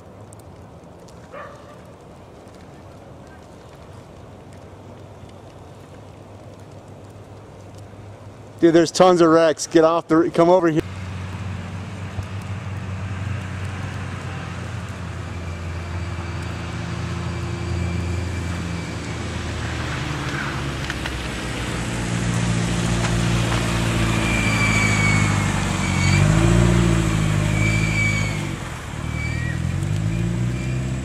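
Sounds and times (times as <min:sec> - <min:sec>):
vehicle engines in slow traffic: 0:00.0 - 0:31.0
engine revving: 0:10.8 - 0:31.0.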